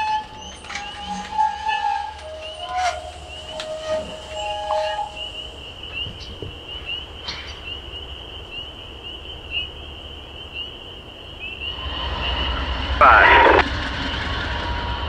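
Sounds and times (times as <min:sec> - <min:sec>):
frogs trilling: 0:00.0 - 0:13.6.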